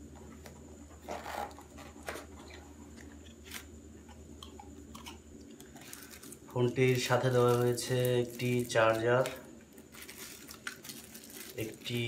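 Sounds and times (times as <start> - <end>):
cardboard packaging rustling: 5.8 - 12.0.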